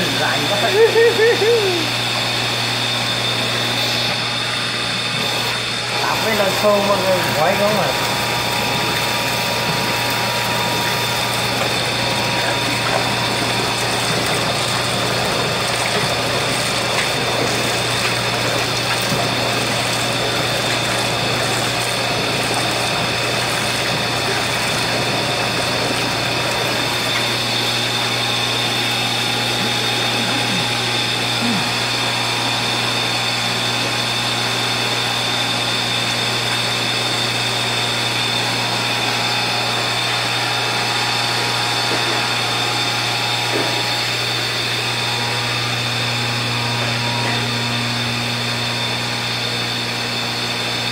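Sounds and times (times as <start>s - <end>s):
constant motor hum: 0.0s - 50.9s
water running from a hose: 0.0s - 50.9s.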